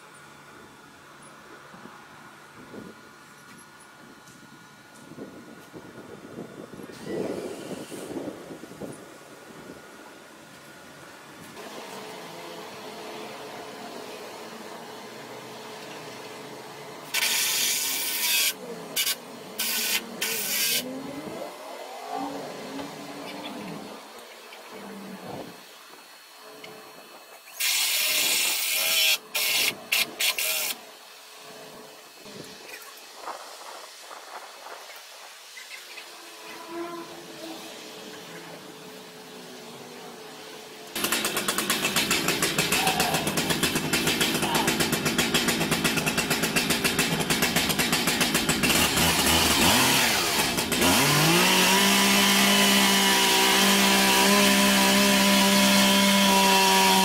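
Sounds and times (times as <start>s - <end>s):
cordless drill driving screws: 17.1s - 20.8s, 27.6s - 30.8s
chainsaw engine running: 40.9s - 57.0s.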